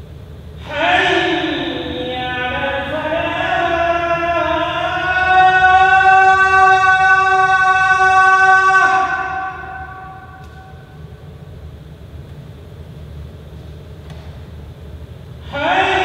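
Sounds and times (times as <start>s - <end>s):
man chanting call to prayer: 0.6s - 11.0s, 15.4s - 16.0s.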